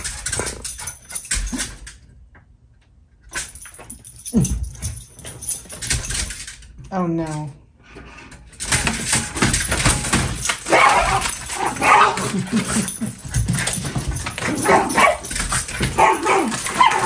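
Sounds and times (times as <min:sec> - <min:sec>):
small dogs barking and yipping: 0:10.4 - 0:13.1, 0:13.7 - 0:17.0.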